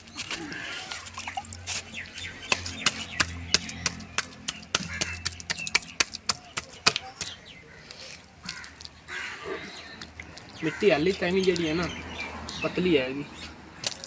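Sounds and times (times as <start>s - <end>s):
hand slapping wet clay: 2.4s - 7.5s, 13.8s - 14.0s.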